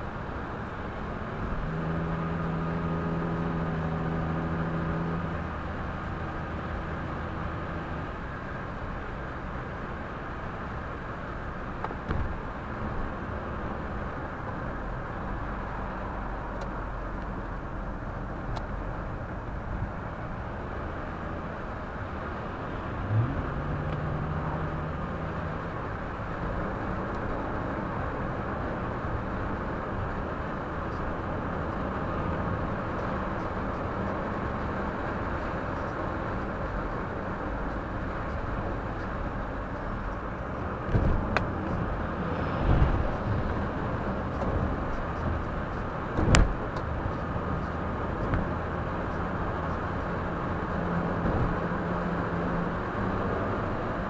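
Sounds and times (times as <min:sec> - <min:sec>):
car engine and tyre noise: 0:00.0 - 0:54.0.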